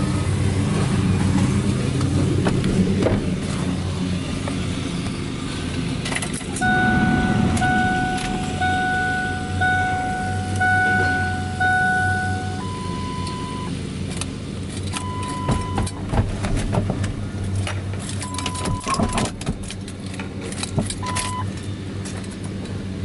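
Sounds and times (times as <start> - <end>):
steady low hum: 1.5 - 13.7
high electronic beep: 6.6 - 13.7.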